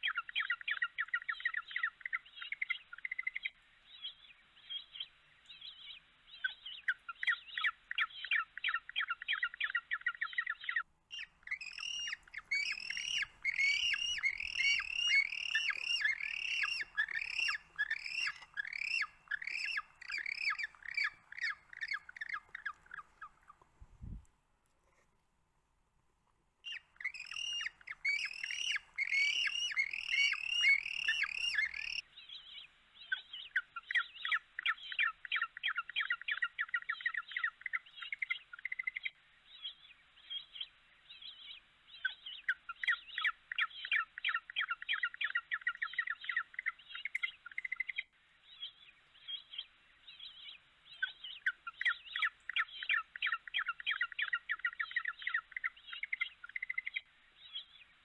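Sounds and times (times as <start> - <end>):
penguin squawking: 11.8 - 22.4.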